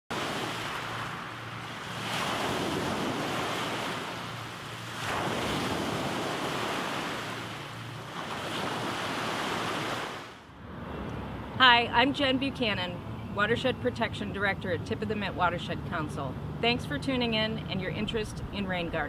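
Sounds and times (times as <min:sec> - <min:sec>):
waves washing on pebble beach: 0:00.1 - 0:07.6.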